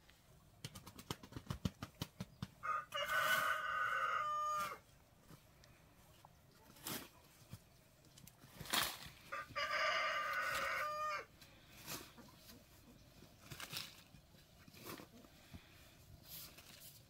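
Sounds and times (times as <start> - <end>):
rooster crowing: 2.6 - 4.8, 9.3 - 11.3.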